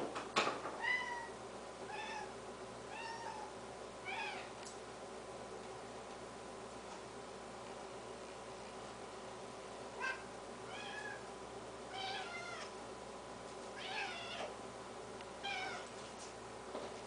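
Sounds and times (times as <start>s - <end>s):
cat meowing: 0.8s - 2.3s, 2.9s - 4.5s, 10.0s - 11.2s, 11.9s - 12.7s, 13.8s - 14.5s, 15.4s - 15.9s.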